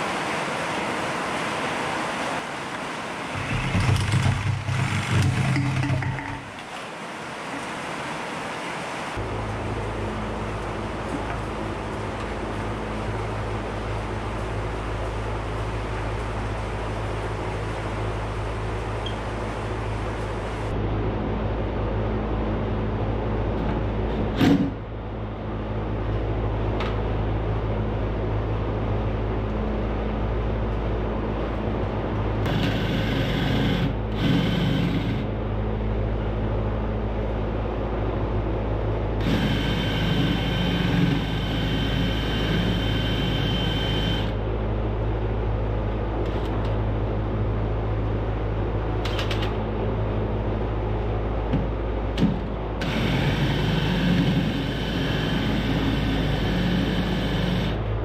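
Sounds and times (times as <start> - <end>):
steady low hum: 0.0 - 58.0
power drill boring into wood: 32.5 - 35.2, 39.2 - 44.3, 52.8 - 57.8.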